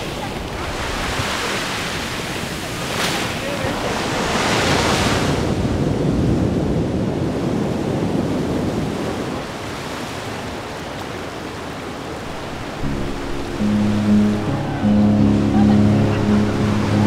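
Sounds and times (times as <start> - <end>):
sea waves washing in: 0.0 - 17.0
wave breaking: 12.1 - 17.0.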